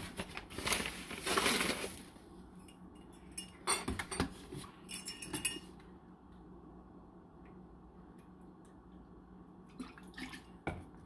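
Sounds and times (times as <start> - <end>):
paper bag rustling: 0.0 - 2.2.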